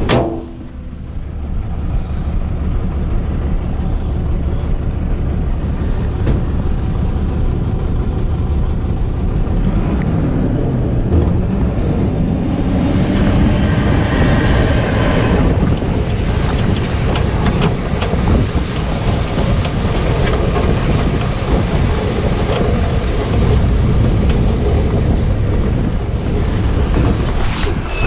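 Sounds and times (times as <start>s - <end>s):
garbage truck engine drone: 0.0s - 28.0s
wind rushing over microphone: 0.0s - 28.0s.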